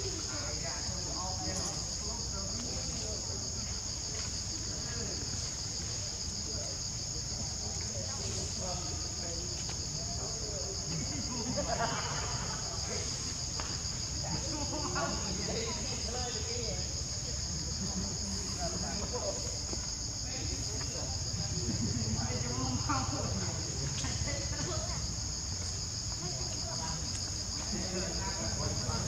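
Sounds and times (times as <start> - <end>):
insects trilling: 0.0 - 29.0.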